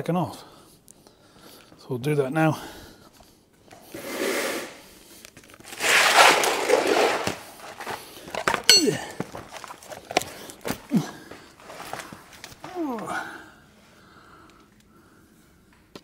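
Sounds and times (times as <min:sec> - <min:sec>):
shuffling and scraping: 0:05.1 - 0:13.1
metal tools clinking: 0:08.3 - 0:09.9.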